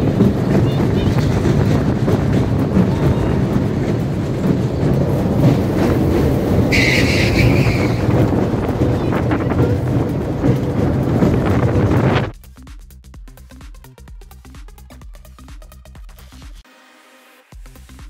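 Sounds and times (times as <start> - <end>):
roller coaster wheels rattling: 0.0 - 12.3
high squeal: 6.7 - 8.2.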